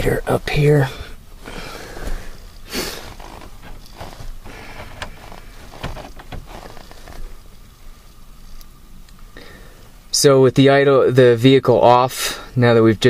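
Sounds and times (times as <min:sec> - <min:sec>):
rustle: 0:00.1 - 0:10.1.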